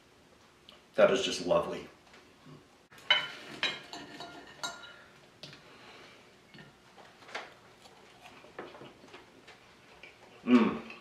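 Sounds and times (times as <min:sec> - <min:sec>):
cutlery clinking on plate: 0:03.0 - 0:05.0.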